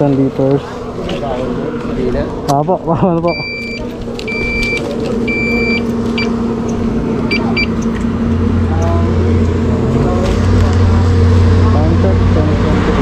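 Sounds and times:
deep engine rumble: 0.0 - 13.0
motorcycle engines idling: 0.0 - 13.0
short electronic beeps: 3.3 - 6.4, 7.3 - 7.8.

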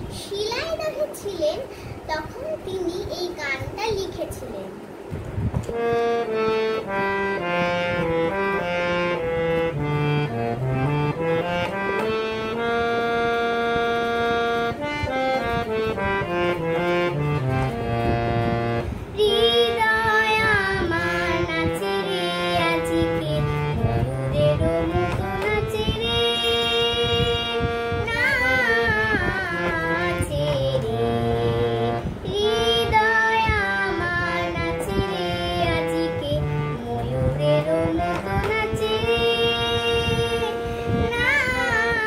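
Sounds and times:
girl singing: 0.0 - 4.9, 18.8 - 42.0
harmonium melody: 5.6 - 42.0.

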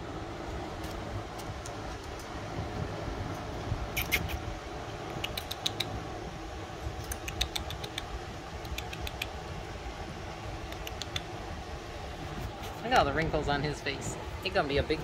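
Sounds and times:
fan humming: 0.0 - 15.0
puppies squeaking: 3.9 - 4.4.

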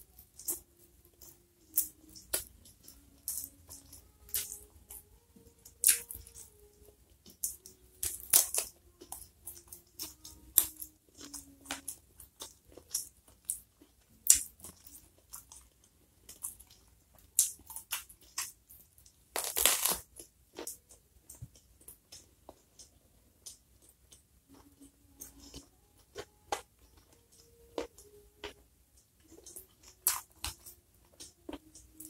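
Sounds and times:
close chewing with mouth clicks: 0.0 - 32.0
crunching bite into eggplant: 19.4 - 20.0.

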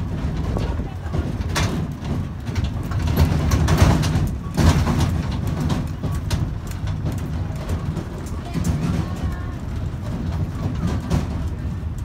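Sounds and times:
train rattles and knocks: 0.0 - 12.0
train rumbling: 0.0 - 12.0.

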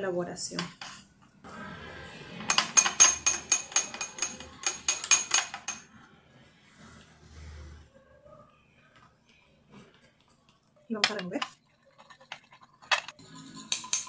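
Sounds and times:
stick clinking on glass beaker: 2.5 - 5.8, 13.0 - 14.0.

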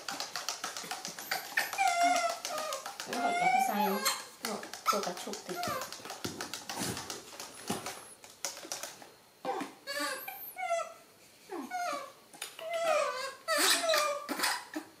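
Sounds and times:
baby monkeys high-pitched calls: 1.2 - 4.3, 11.9 - 14.8.

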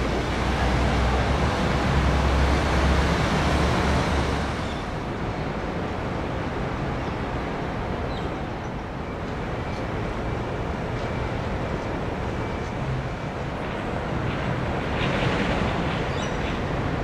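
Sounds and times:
distant traffic: 0.0 - 17.0.

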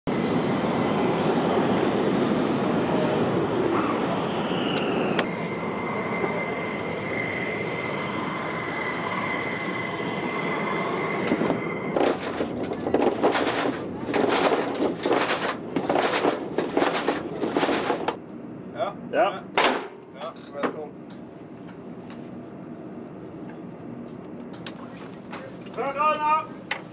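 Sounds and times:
jet engine whine: 0.1 - 26.9
metallic clanks and rattles: 11.9 - 18.2.

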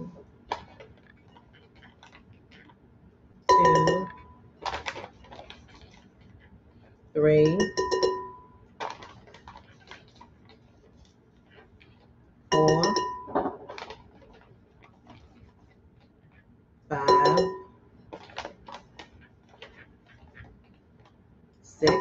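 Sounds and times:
spoon clicking and scraping: 3.5 - 5.0, 7.4 - 10.0, 12.5 - 14.0, 16.9 - 20.4.

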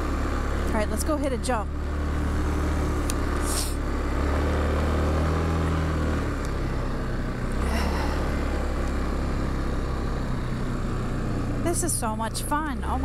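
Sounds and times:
atv engine running under throttle: 0.0 - 13.0
short hissing rushes: 3.4 - 3.8.

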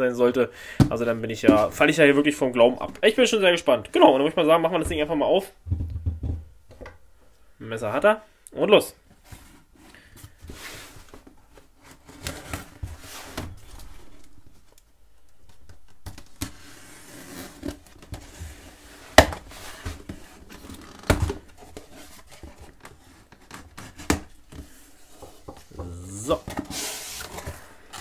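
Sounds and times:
tape and cardboard crackling: 10.3 - 28.0.

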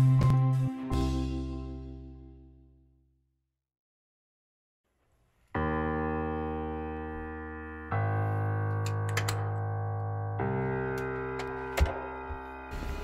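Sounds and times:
sustained keyboard chords: 5.6 - 13.0.

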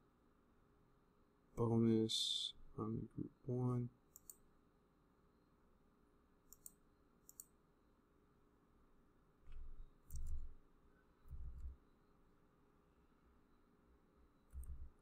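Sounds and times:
computer mouse clicking: 4.1 - 4.4, 6.5 - 7.6, 9.5 - 10.6, 14.5 - 15.0.

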